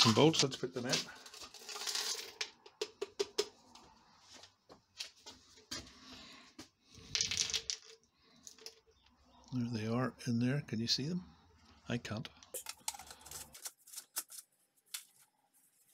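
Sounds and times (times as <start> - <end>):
metal nuts rattling into plastic barrel: 1.2 - 3.2.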